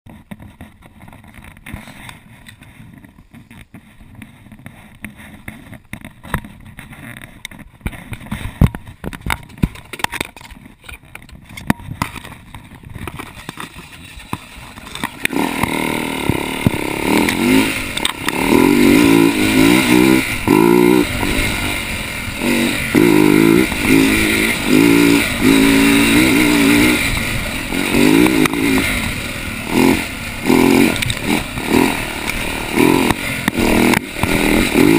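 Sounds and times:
dirt bike engine revving: 0:13.1 - 0:34.9.

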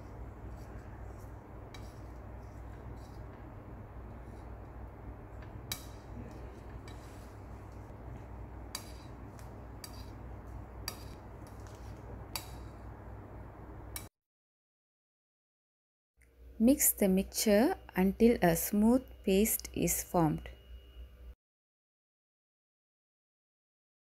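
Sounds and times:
low hum: 0:00.0 - 0:14.1
knife scraping on a tile: 0:05.8 - 0:07.8, 0:09.8 - 0:10.3.

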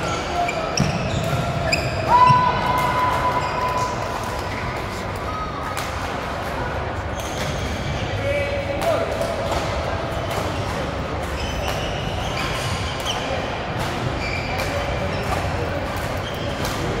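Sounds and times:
shoes squeaking on court floor: 0:00.0 - 0:02.3, 0:07.0 - 0:08.2, 0:10.2 - 0:17.0
busy sports hall noise: 0:00.0 - 0:17.0.

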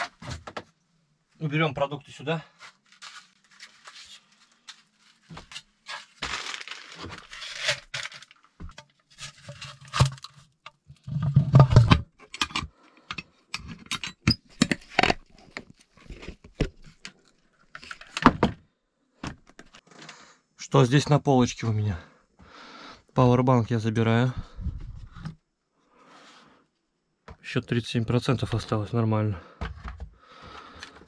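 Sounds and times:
packaging rustling: 0:05.9 - 0:08.5.

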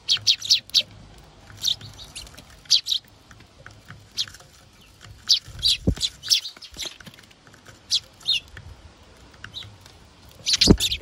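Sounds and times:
sparrows chirping: 0:00.0 - 0:11.0.

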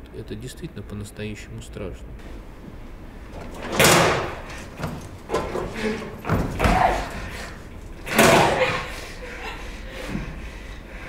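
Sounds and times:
bangs and thumps on wooden stage: 0:03.3 - 0:07.5.

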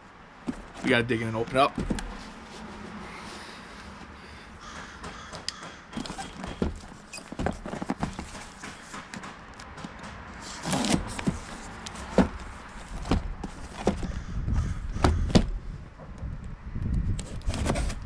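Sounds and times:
cardboard box knocks and rustles: 0:00.5 - 0:00.9, 0:01.7 - 0:02.2, 0:06.0 - 0:15.5
cardboard tearing: 0:10.4 - 0:14.0.

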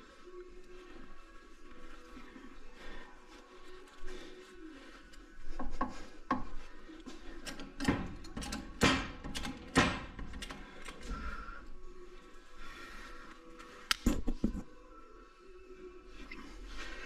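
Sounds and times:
tools and metal parts clattering: 0:07.4 - 0:11.1.

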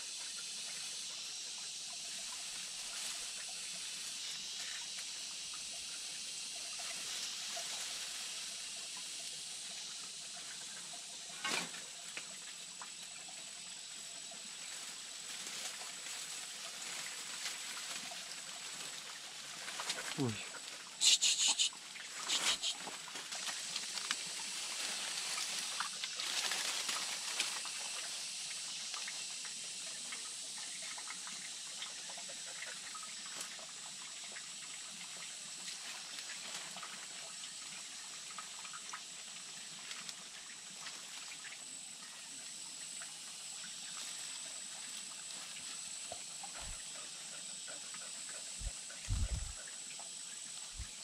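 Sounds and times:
steady soft hiss: 0:00.0 - 0:29.3, 0:40.8 - 0:51.0
dry grass rustling and crackling: 0:22.3 - 0:27.9, 0:49.0 - 0:49.6
thin high whine: 0:48.4 - 0:49.7.

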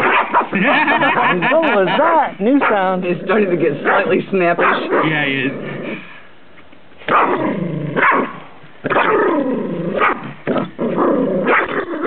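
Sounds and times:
small dog growling and barking: 0:07.1 - 0:12.0.

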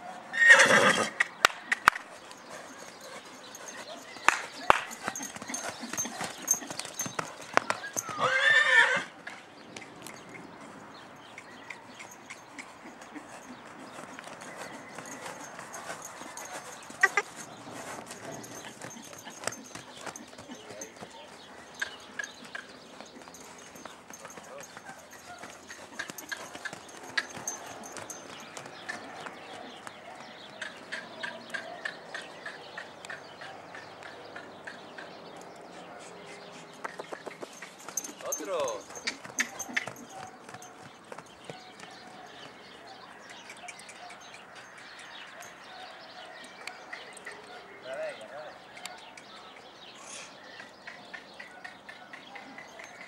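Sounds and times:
horse whinnying: 0:00.4 - 0:01.3, 0:07.7 - 0:09.1
hoofbeats on ground: 0:00.5 - 0:45.7
horse hooves trotting on sand: 0:01.2 - 0:49.4, 0:50.5 - 0:53.0.

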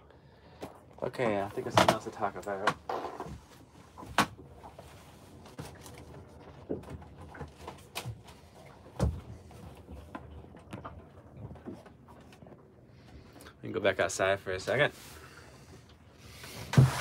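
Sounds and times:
knocks and bumps of handling things: 0:01.6 - 0:04.4.

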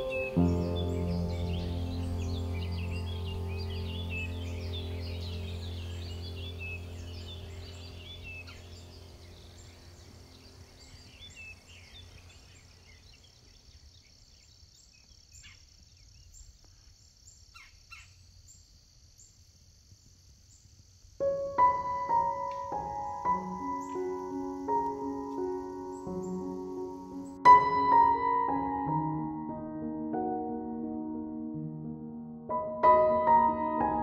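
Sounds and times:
background music: 0:00.0 - 0:11.0, 0:21.3 - 0:34.0
sharp bird calls: 0:00.0 - 0:18.6
small birds chirping and twittering: 0:00.0 - 0:27.7.

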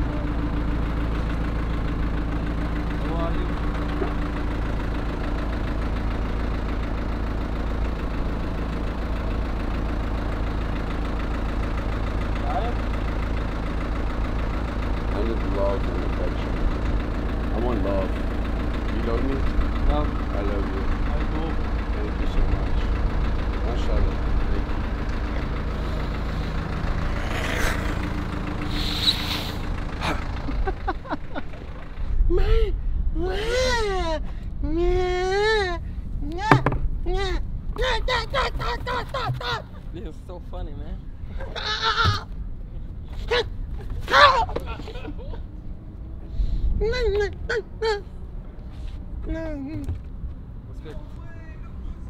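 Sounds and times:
truck engine idling: 0:00.0 - 0:52.0
short hiss: 0:28.6 - 0:29.7.

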